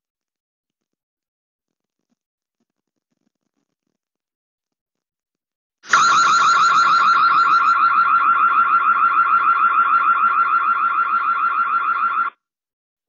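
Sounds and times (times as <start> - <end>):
warbling electronic alarm siren: 5.9 - 12.3.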